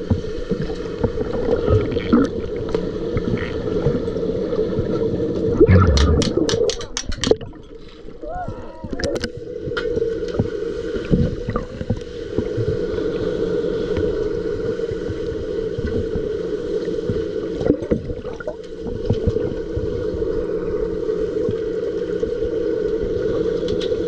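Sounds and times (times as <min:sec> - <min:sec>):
muffled underwater rushing: 0:00.0 - 0:24.0
underwater knocks: 0:05.6 - 0:07.6.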